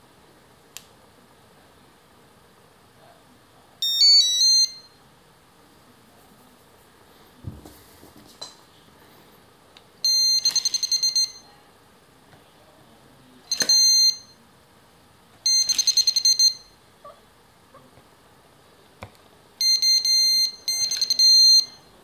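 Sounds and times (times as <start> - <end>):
electronic bite alarm beeping: 3.8 - 4.9, 10.0 - 11.5, 13.5 - 14.3, 15.4 - 16.7, 19.6 - 21.9.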